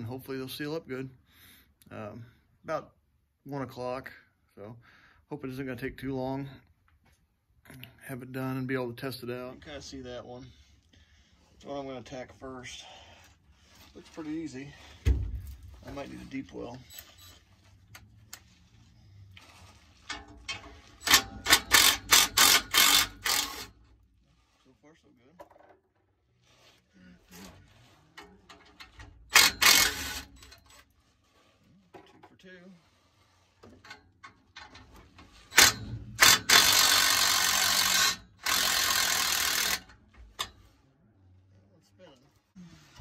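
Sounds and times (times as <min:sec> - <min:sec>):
impact wrench hammering: 0:20.1 - 0:23.7, 0:29.3 - 0:30.6, 0:35.5 - 0:40.5
cordless power tool bursts: 0:20.9 - 0:23.8, 0:29.2 - 0:30.6, 0:35.4 - 0:39.9.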